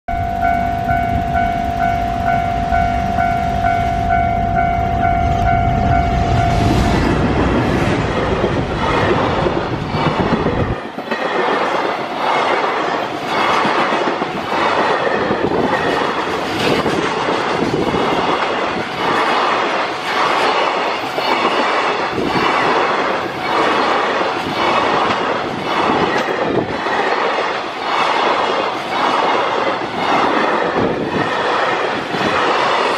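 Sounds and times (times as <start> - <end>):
locomotive low rumble: 0.1 - 10.8
train wheels clickety-clack: 6.3 - 32.9.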